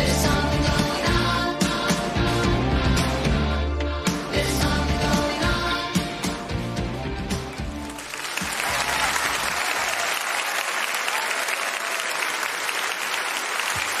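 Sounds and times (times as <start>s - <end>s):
pop song: 0.0s - 7.8s
audience applauding: 7.5s - 14.0s.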